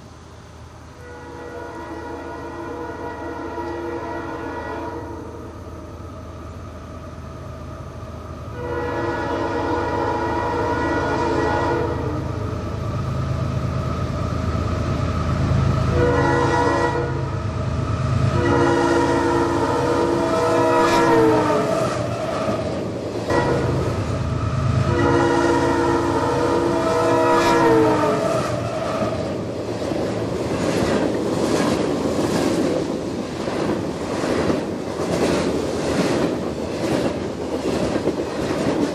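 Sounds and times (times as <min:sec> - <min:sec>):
diesel locomotive rumble: 0:00.0 - 0:38.9
locomotive air horn blasts: 0:01.0 - 0:05.4, 0:08.5 - 0:12.4, 0:15.9 - 0:17.4, 0:18.3 - 0:22.4, 0:23.2 - 0:24.2, 0:24.8 - 0:29.2.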